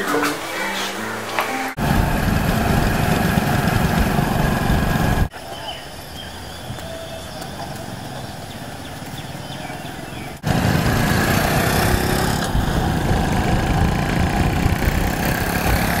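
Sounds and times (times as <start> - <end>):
motorcycle engines riding: 0.0 - 16.0
wind noise: 1.8 - 5.4, 8.6 - 16.0.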